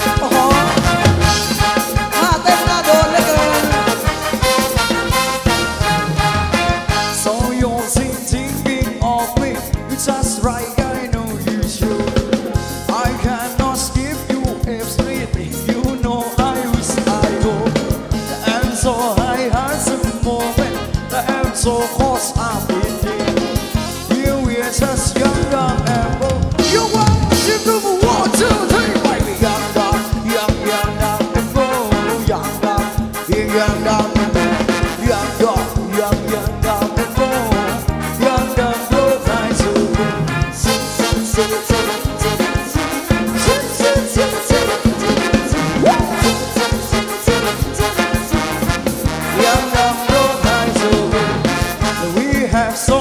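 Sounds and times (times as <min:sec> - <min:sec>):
upbeat dance music: 0:00.0 - 0:07.6, 0:40.7 - 0:52.6
drum kit beat: 0:00.0 - 0:53.0.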